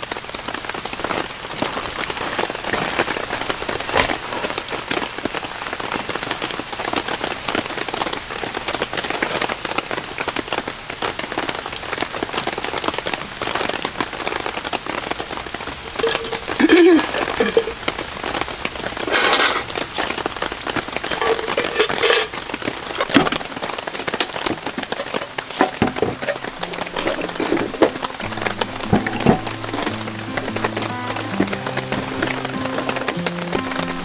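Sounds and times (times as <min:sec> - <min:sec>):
rain pattering on a tarp: 0:00.0 - 0:34.0
dishes rustling and knocking: 0:15.9 - 0:17.8, 0:19.0 - 0:23.6, 0:24.2 - 0:31.7.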